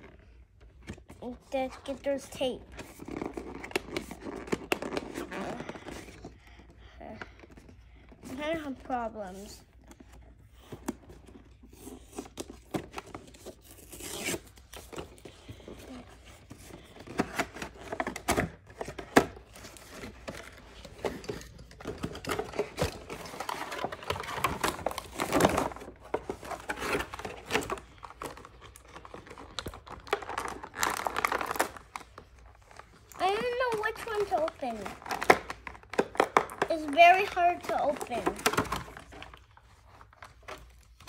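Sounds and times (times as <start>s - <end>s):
tape and cardboard ripping: 2.7s - 5.9s, 11.6s - 15.3s
packaging scraping: 11.6s - 39.4s
plastic bag crinkling: 20.8s - 39.4s.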